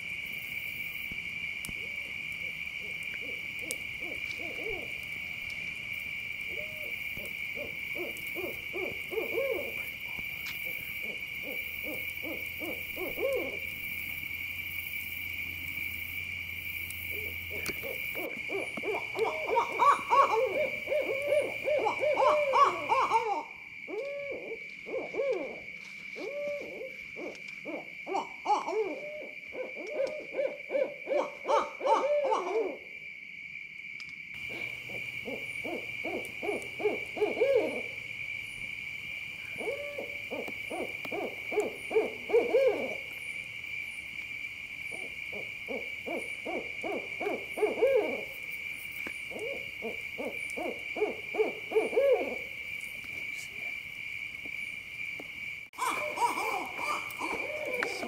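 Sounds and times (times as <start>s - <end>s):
owls hooting: 2.9s - 5.1s, 6.5s - 9.8s, 11.0s - 13.7s, 17.1s - 32.9s, 34.4s - 38.0s, 39.4s - 43.2s, 44.9s - 48.4s, 49.3s - 52.6s, 55.8s - 58.0s.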